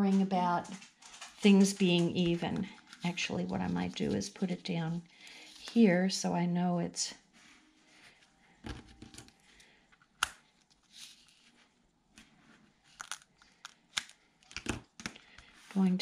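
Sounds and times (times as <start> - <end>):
tape crackling and clicking: 8.6 - 11.3, 12.9 - 15.5.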